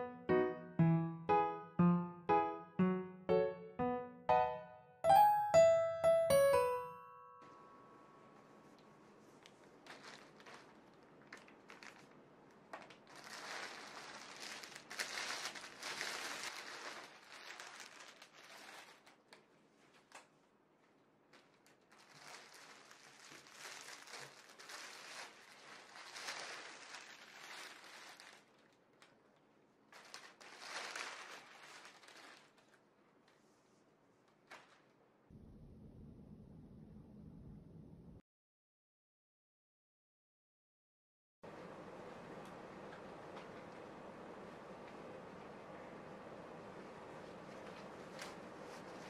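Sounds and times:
fabric rustling: 0:08.4 - 0:35.0, 0:47.2 - 0:49.0
plastic bags crinkling: 0:09.4 - 0:20.4, 0:21.3 - 0:33.0.

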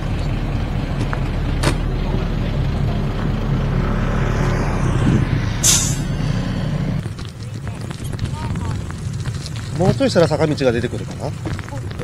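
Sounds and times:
wind and road noise: 0:00.0 - 0:12.0.

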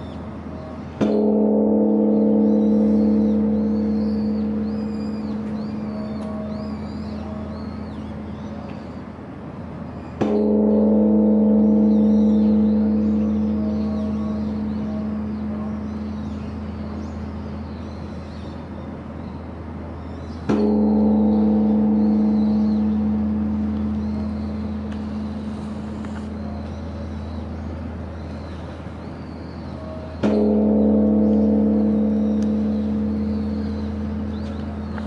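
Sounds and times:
large temple bell ringing: 0:00.0 - 0:08.8, 0:09.6 - 0:35.0.

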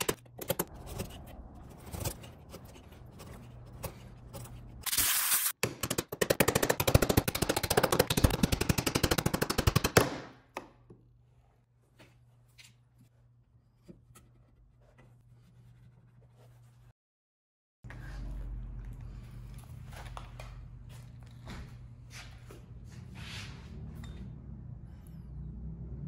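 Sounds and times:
low steady hum: 0:17.9 - 0:22.8.

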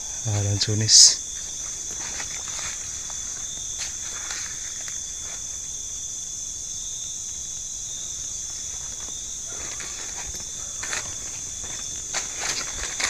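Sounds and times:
night insects chirring: 0:00.0 - 0:13.0
footsteps on dry leaves: 0:01.3 - 0:05.6, 0:08.4 - 0:13.0.

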